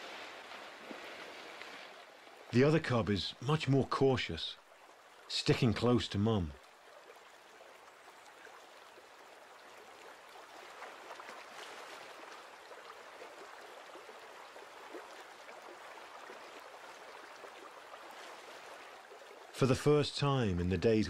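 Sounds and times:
bear wading splashes: 0.0s - 2.9s, 6.8s - 19.6s
shallow river over gravel: 0.0s - 21.0s.

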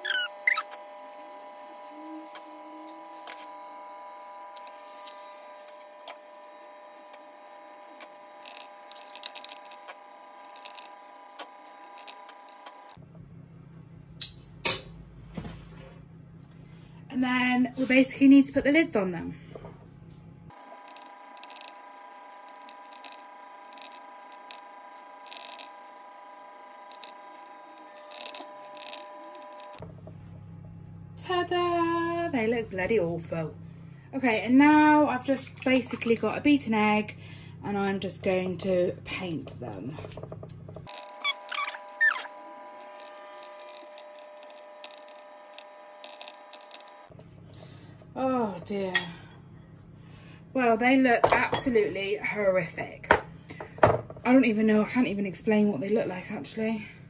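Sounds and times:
hum of held tones: 0.0s - 14.0s
steady hum with held tones: 0.0s - 57.0s.

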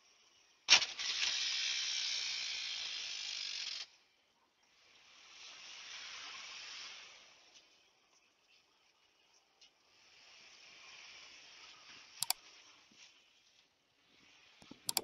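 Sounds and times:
sharp click: 14.6s - 15.0s.

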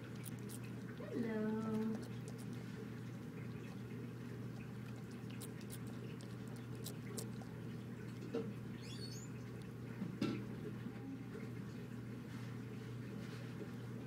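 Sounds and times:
lizard chewing crunchy clicks: 0.0s - 1.0s, 1.6s - 8.6s
steady low hum: 0.0s - 14.0s.

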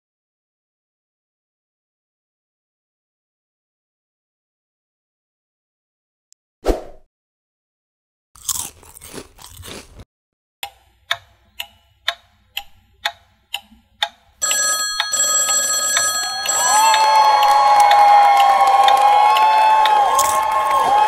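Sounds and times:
held ringing tones: 14.4s - 17.5s.

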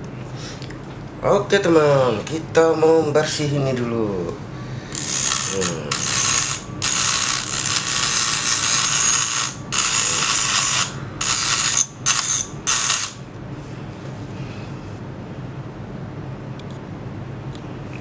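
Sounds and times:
rotary tool grinding: 4.9s - 13.2s.

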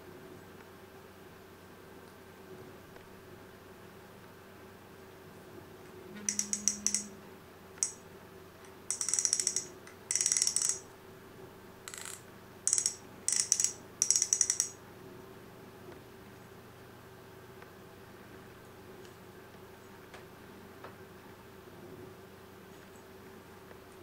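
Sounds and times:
fishing reel drag clicking: 6.3s - 7.1s, 8.9s - 10.8s, 11.9s - 14.8s.

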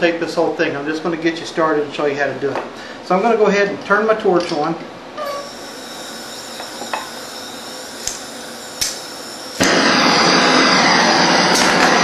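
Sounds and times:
gas hissing: 5.2s - 12.0s
torch flame roaring: 5.2s - 12.0s
spark striker clicks: 8.0s - 12.0s.

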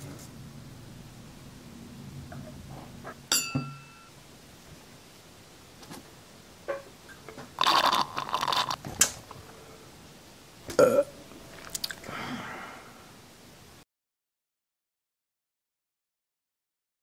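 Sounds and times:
soft mouth noises: 7.3s - 9.6s, 10.7s - 12.1s
loud burp: 7.6s - 8.8s, 10.7s - 11.2s
noisy mouth sucking: 7.6s - 8.8s, 11.5s - 12.1s.

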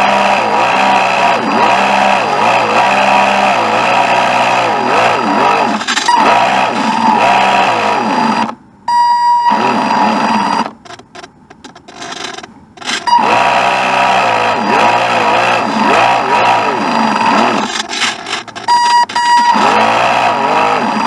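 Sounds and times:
boat motor buzzing whine: 0.0s - 21.0s.

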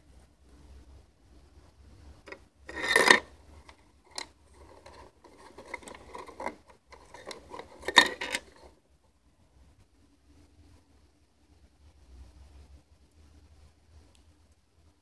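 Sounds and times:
handling scraping and rubbing: 2.2s - 8.8s.

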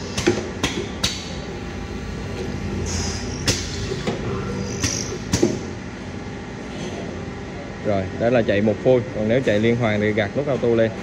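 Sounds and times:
drill motors humming: 1.5s - 6.1s
pneumatic air hiss: 2.8s - 5.7s.

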